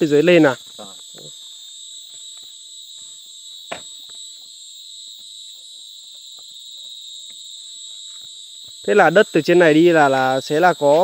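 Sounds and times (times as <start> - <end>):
insects chorus: 0.0 - 11.0
faint ticks and rustles: 0.2 - 9.5
sharp knock: 3.7 - 4.0.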